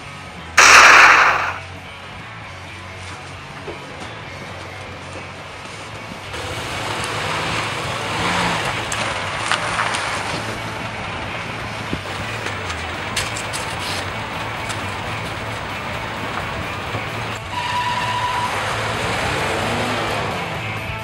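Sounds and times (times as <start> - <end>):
rush of noise: 0.6 - 1.6
sharp clicks: 0.6 - 1.6
truck engine idling: 5.8 - 18.9.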